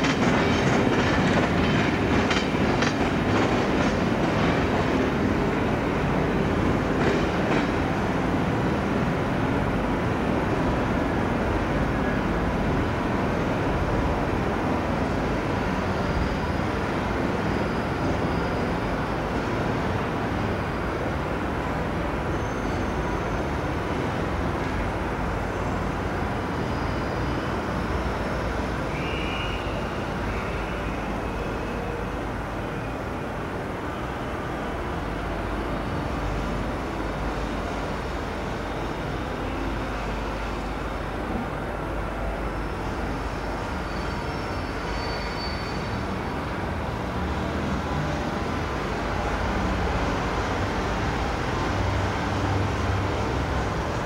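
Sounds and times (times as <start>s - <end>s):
train coaches rumbling over tracks: 0.0s - 54.0s
high squeal: 26.6s - 32.1s, 43.4s - 46.2s.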